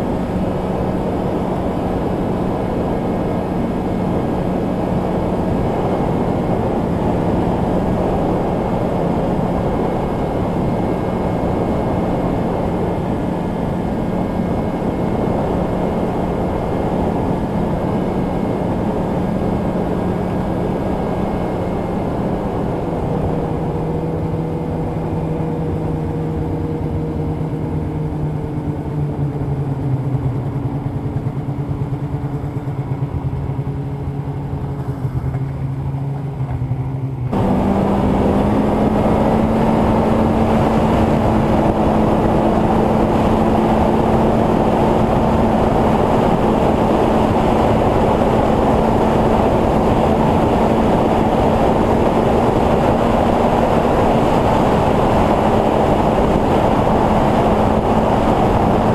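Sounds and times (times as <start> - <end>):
snowmobile engine running: 0.0 - 58.9
snowmobile track noise: 0.0 - 58.9.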